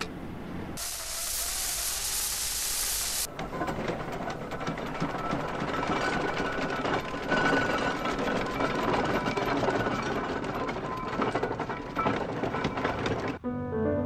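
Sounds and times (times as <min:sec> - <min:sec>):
old car rattling on rough road: 0:03.3 - 0:13.4.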